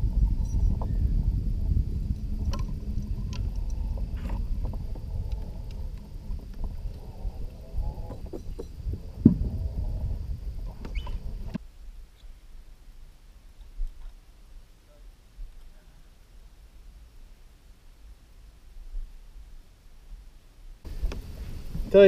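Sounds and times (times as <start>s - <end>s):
wind on microphone: 0.0s - 11.6s, 20.9s - 22.0s.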